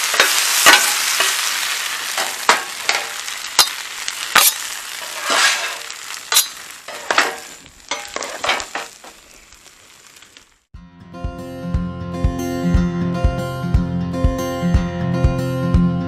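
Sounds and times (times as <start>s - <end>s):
metal spatula scraping: 0.0s - 9.4s
potatoes sizzling on a griddle: 0.0s - 10.7s.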